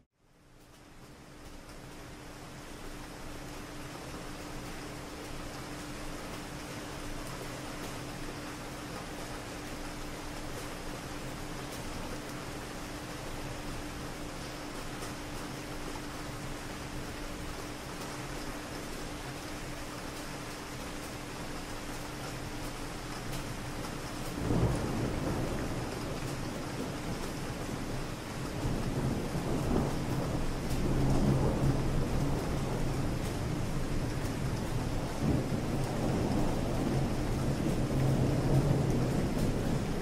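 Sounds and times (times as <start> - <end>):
rain on a street: 0.1 - 40.0
rain hissing: 24.0 - 40.0
distant thunder rumble: 34.6 - 40.0.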